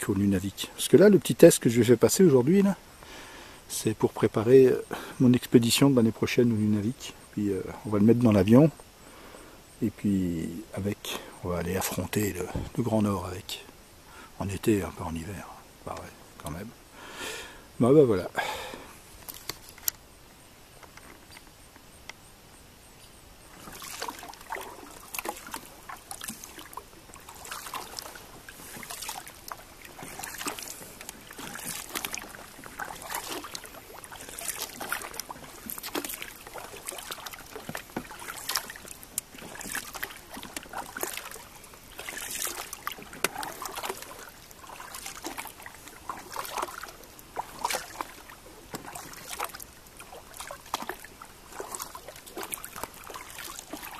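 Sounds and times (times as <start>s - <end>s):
paddle splashing through water: 11.1s - 13.4s, 23.4s - 53.9s.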